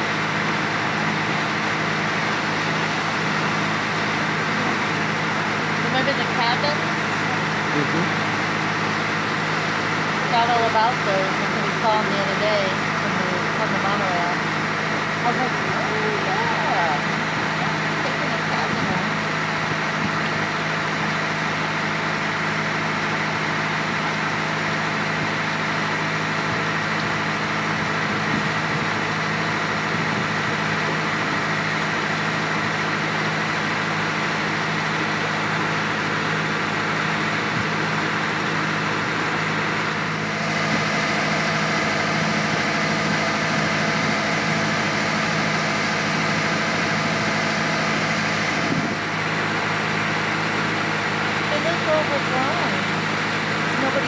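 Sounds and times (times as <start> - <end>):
boat engine running: 0.0 - 54.0
water rushing along hull: 0.0 - 54.0.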